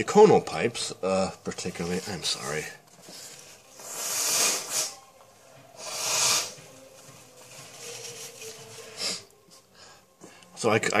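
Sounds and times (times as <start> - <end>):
person blowing nose: 3.7 - 5.1, 5.8 - 6.7, 8.9 - 9.3.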